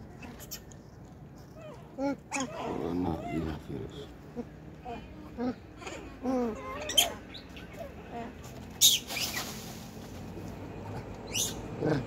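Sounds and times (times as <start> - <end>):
macaques calling: 2.0 - 8.2, 11.2 - 12.0.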